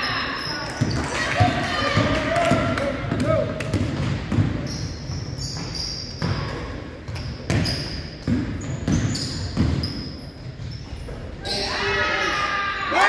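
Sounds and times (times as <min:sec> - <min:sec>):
basketball bouncing on court: 0:00.7 - 0:11.2
sneakers squeaking on hardwood: 0:03.7 - 0:12.3.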